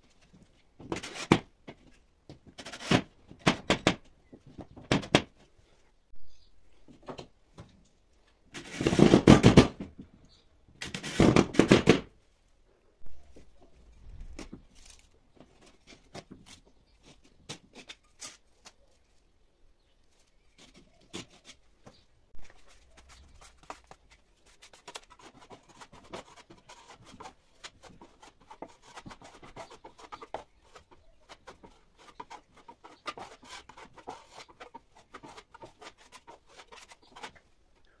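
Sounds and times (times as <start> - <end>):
trowel scraping compound: 0.8 - 1.5, 8.5 - 9.6, 10.8 - 11.9, 22.4 - 37.4.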